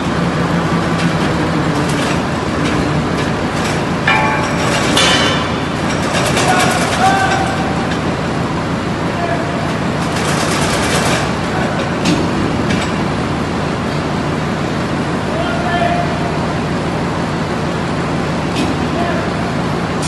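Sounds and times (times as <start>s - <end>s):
forging press drone: 0.0s - 20.0s
sharp metallic clatters: 1.8s - 8.0s.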